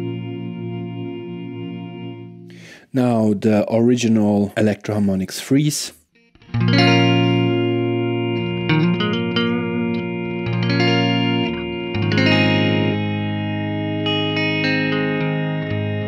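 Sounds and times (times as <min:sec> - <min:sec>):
sustained guitar drone: 0:00.0 - 0:02.6, 0:06.3 - 0:16.0
electric guitar chords: 0:00.0 - 0:02.8, 0:06.1 - 0:16.0.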